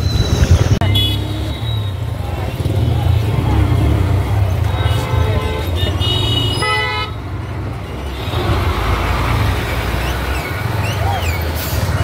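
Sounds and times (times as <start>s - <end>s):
motorcycle engine rumble: 0.0s - 12.0s
vehicle horns honking: 0.8s - 9.1s.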